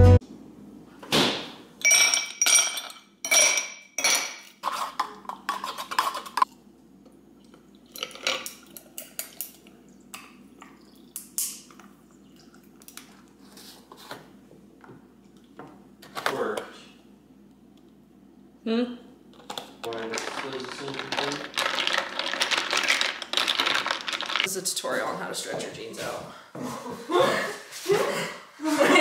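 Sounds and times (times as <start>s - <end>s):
ice cubes clinking into glass: 1.8s - 4.5s, 19.9s - 24.5s
coffee pouring over ice: 19.9s - 24.5s.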